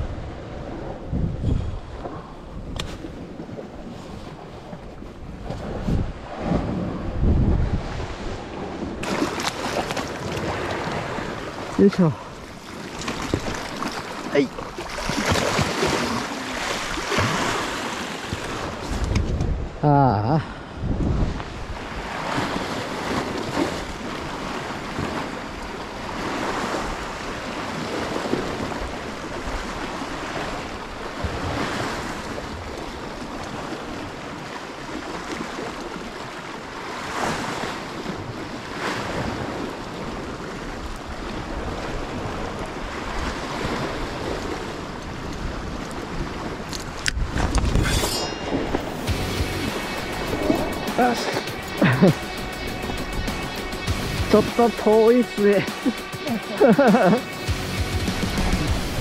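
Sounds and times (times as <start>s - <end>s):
wind noise on microphone: 0.0s - 9.3s, 15.1s - 34.0s, 37.1s - 54.4s, 57.8s - 59.0s
sea waves washing against rocks: 0.0s - 19.8s, 20.7s - 53.8s, 54.4s - 57.5s.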